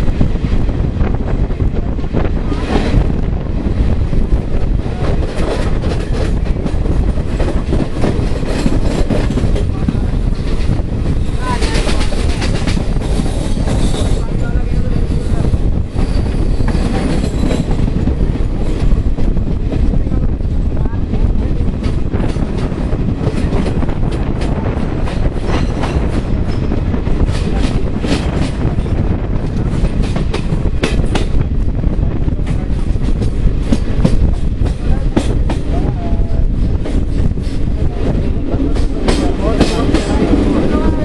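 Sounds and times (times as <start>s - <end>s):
train wheels rumbling on rails: 0.0s - 41.0s
wind buffeting microphone: 0.0s - 41.0s.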